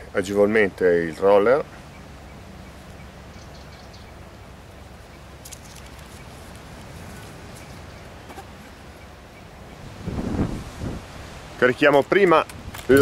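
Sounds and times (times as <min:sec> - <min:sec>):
wind rumble on microphone: 0:09.6 - 0:13.0.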